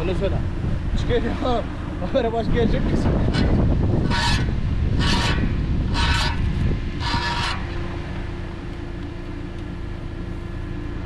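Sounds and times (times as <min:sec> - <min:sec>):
steady hum: 0:00.0 - 0:11.0
tractor engine rumbling: 0:00.0 - 0:11.0
short high squeals: 0:03.4 - 0:07.8.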